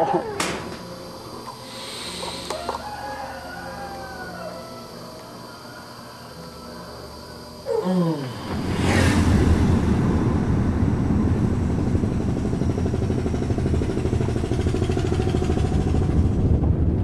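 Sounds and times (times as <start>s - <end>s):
brief whoosh: 8.4s - 12.3s.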